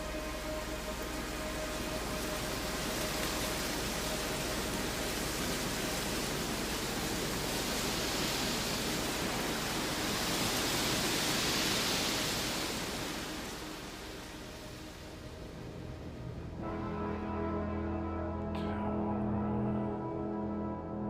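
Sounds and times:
steady rushing hiss: 0.0s - 16.6s.

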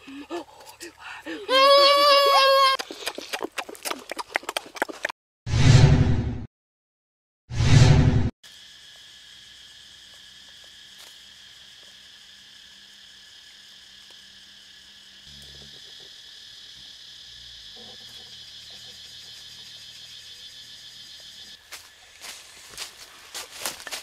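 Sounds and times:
insects chirring: 8.4s - 24.0s.

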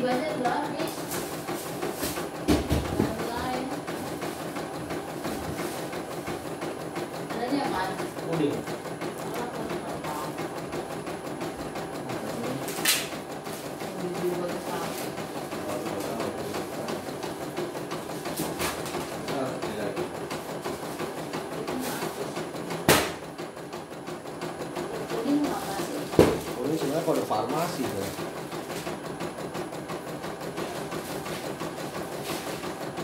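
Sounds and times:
sharp knocks: 2.1s - 3.3s, 22.8s - 23.2s, 26.1s - 26.6s.

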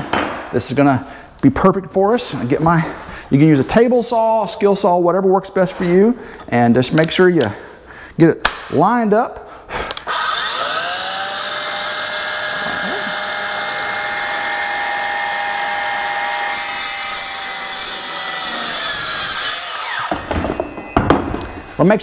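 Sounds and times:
saw motor winding down: 10.0s - 20.3s
circular saw motor whine: 10.1s - 17.7s
saw blade cutting plank: 10.1s - 20.3s.

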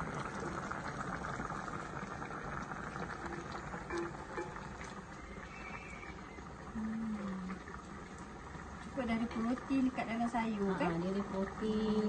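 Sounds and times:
pot of water boiling: 0.0s - 12.0s
wooden spoon stirring pot: 2.8s - 5.3s.

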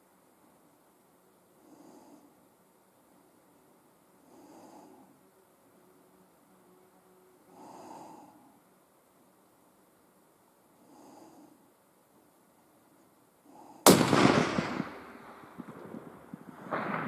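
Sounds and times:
slow breathing: 1.4s - 3.2s, 4.1s - 5.5s, 7.4s - 8.7s, 10.7s - 11.8s, 13.3s - 14.0s
rifle shot with echo: 13.8s - 17.0s.

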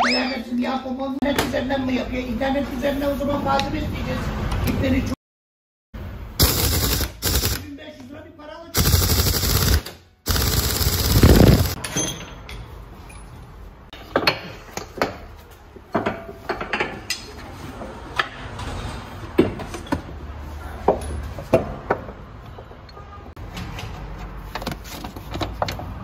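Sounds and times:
pneumatic impact wrench burst: 6.4s - 7.6s, 8.8s - 11.8s.

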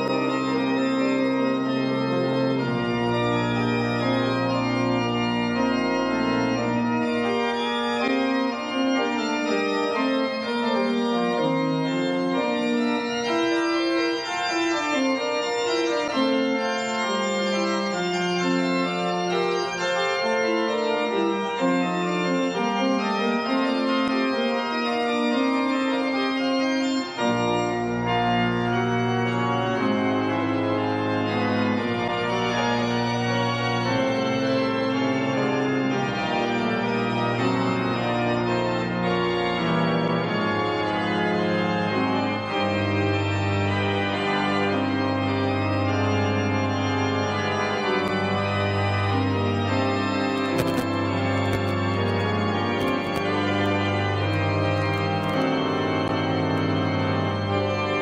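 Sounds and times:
organ chords: 0.0s - 58.0s
deep organ bass notes: 41.4s - 58.0s.

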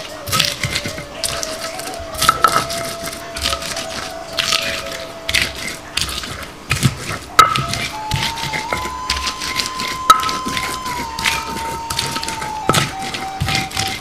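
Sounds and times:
stone pestle grinding shallots: 0.0s - 14.0s
stone knocking on stone: 2.3s - 2.7s, 7.4s - 8.9s.

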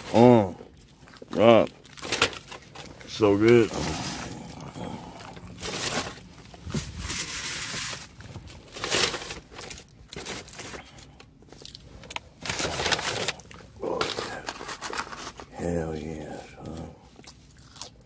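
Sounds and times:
paper bag rustling and crinkling: 0.0s - 4.6s, 5.2s - 16.2s.

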